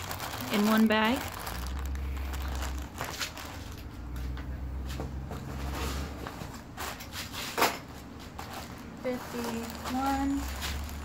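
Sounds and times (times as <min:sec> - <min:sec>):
plastic wrapping crinkling: 0:00.0 - 0:04.6, 0:08.2 - 0:11.0.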